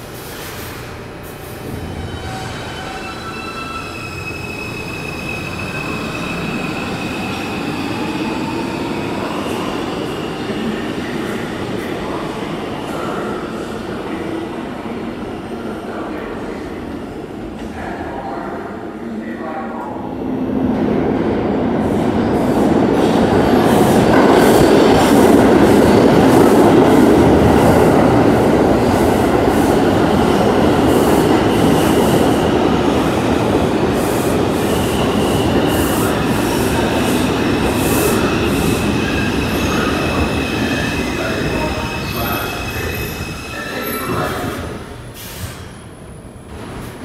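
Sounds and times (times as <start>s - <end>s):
high-pitched brake squeal: 1.8s - 7.9s, 38.1s - 44.5s
train wheels rumbling on rails: 20.8s - 47.0s.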